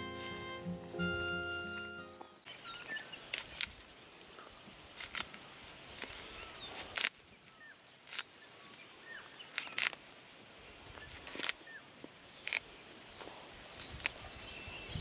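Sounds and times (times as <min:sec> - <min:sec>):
leaves rustling and twigs snapping: 0:02.2 - 0:07.3, 0:07.9 - 0:10.3, 0:10.9 - 0:14.4.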